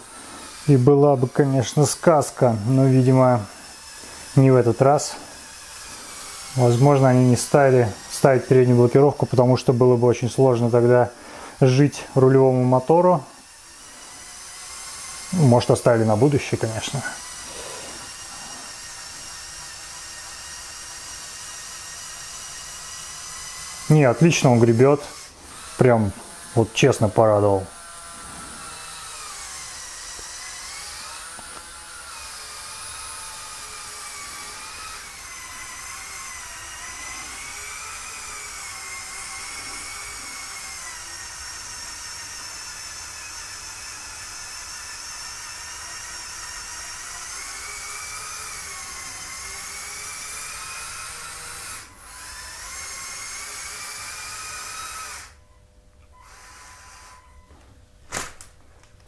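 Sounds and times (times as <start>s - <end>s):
toy motors and gears whining: 0.0s - 58.5s.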